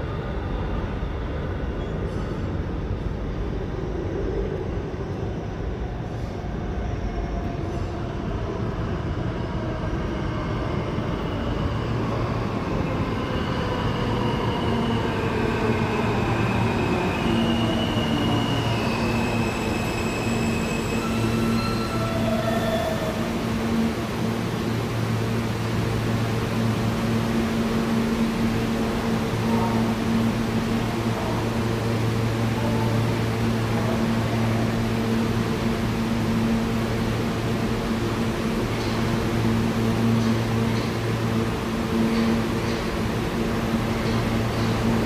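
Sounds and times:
subway train rumbling: 0.0 - 45.0
high squeals: 17.1 - 23.2.

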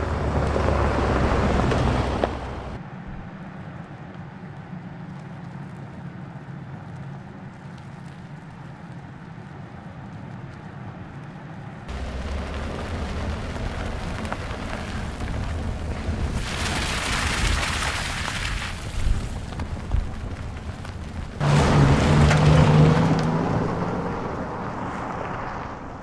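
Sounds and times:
tyres on gravel: 0.0 - 2.8, 11.9 - 26.0
low engine drone: 11.9 - 16.5.

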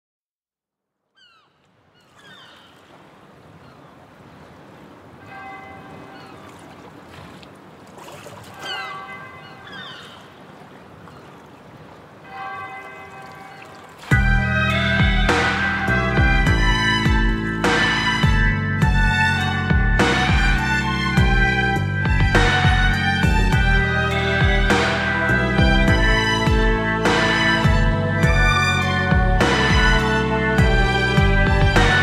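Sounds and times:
seagulls crying: 1.2 - 4.2, 5.1 - 7.2, 8.4 - 32.0
surf washing: 1.8 - 18.4
bell-like ringing tones: 5.2 - 6.3, 12.2 - 13.9
loud music: 14.1 - 32.0.

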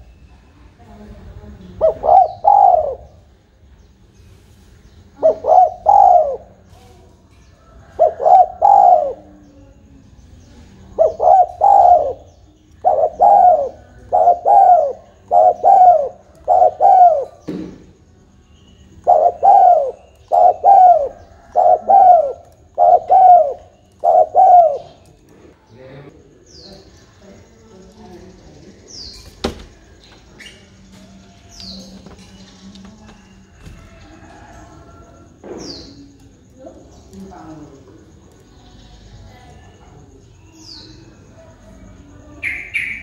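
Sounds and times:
dove cooing: 1.5 - 3.3, 5.1 - 9.9, 10.5 - 17.9, 18.9 - 25.4.

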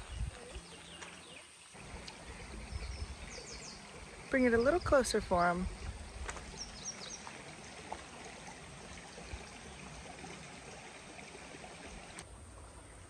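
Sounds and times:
faint ticks: 1.9 - 2.3.

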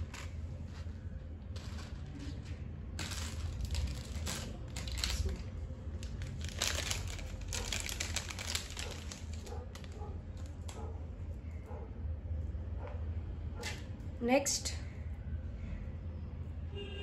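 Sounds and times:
paper crinkling and rustling: 0.0 - 10.9.

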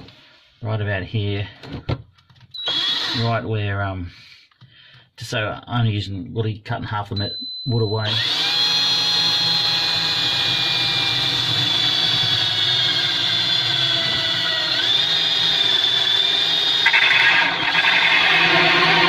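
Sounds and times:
electric drill with hole saw: 2.6 - 3.3, 8.1 - 19.0.

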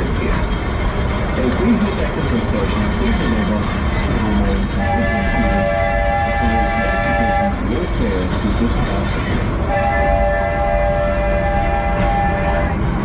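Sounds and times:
train rumbling: 0.0 - 13.0
train whistle chord: 4.7 - 7.6, 9.7 - 12.9.

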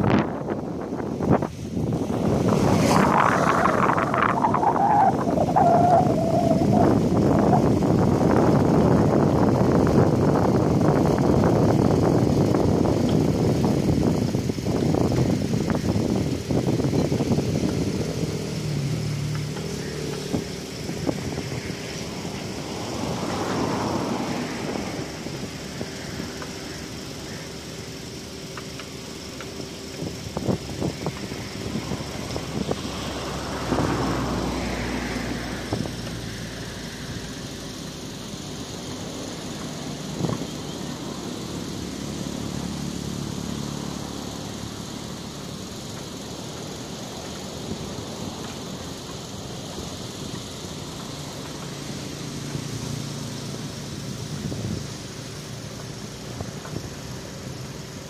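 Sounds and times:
distant car engine accelerating: 0.0 - 27.4, 28.6 - 58.0
steady rushing noise: 0.0 - 27.4.

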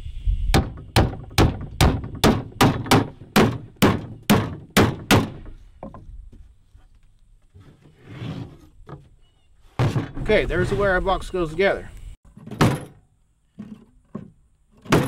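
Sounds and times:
hammer driving nails into wood: 0.6 - 5.5.

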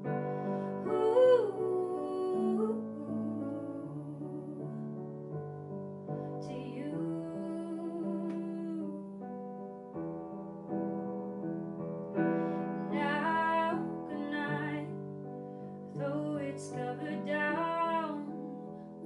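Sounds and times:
soft piano ballad: 0.0 - 19.0
woman singing: 0.7 - 4.9, 6.4 - 9.1, 12.9 - 15.0, 15.9 - 18.7.

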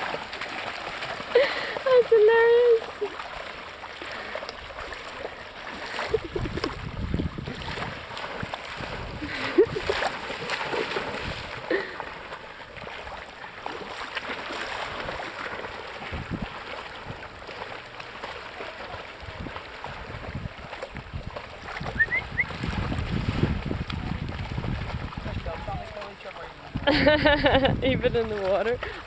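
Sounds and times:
dogs splashing in water: 0.0 - 29.0
small waves washing: 0.0 - 29.0.

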